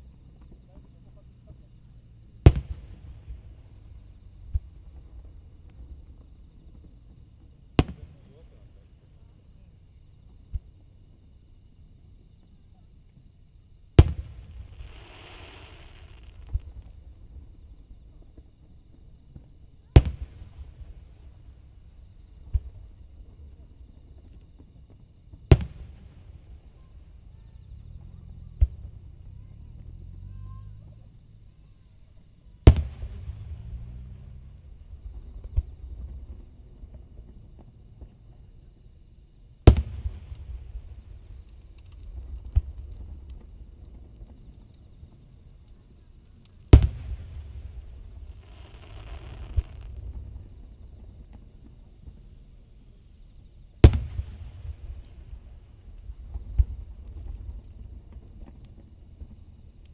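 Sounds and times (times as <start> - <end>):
insects trilling: 0.0 - 59.9
firework shells booming: 2.4 - 3.7, 7.8 - 8.5, 25.3 - 27.1, 32.6 - 37.7, 39.6 - 44.4, 46.7 - 51.3, 53.8 - 59.4.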